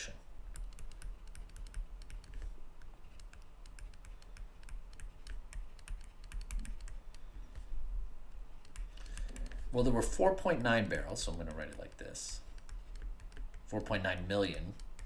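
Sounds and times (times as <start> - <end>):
stylus tapping on tablet screen: 0.5 - 7.7, 11.6 - 13.8.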